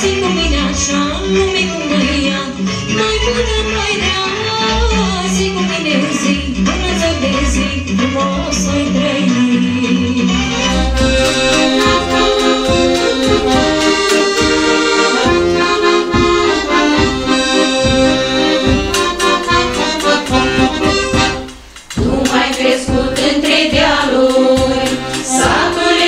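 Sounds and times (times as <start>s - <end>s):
accordion folk tune over a beat: 0.0s - 26.0s.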